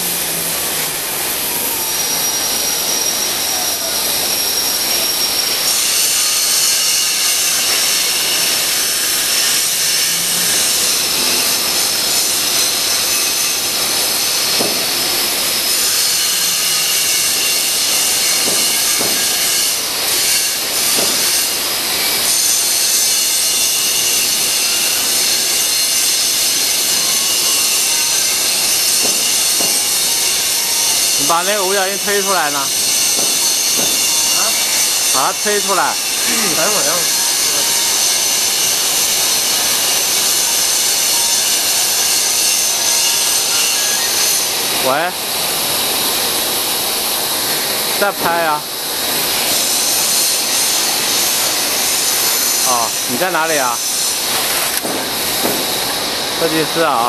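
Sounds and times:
factory machinery hiss: 0.0s - 57.0s
motor whines gliding in pitch: 0.0s - 57.0s.

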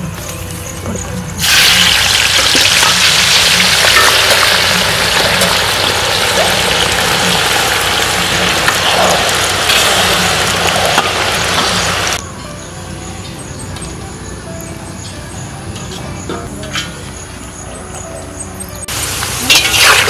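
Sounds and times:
potato slices sizzling in oil: 1.4s - 12.2s, 18.9s - 20.0s.

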